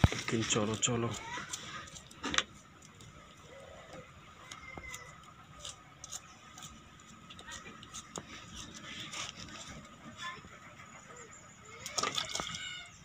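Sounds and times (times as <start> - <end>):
knife cutting tomato: 4.0 - 9.8.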